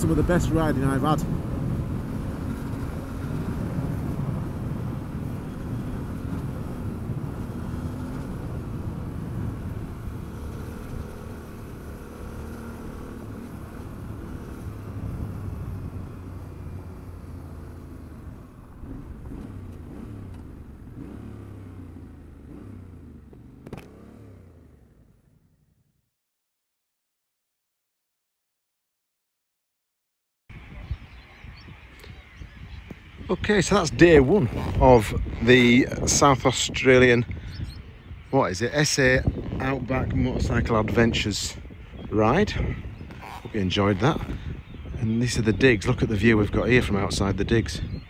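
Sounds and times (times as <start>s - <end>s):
tyres on gravel: 0.0s - 24.7s, 42.1s - 47.8s
motorcycle engine running: 0.0s - 26.0s, 30.6s - 48.0s
wind rushing: 30.5s - 48.0s.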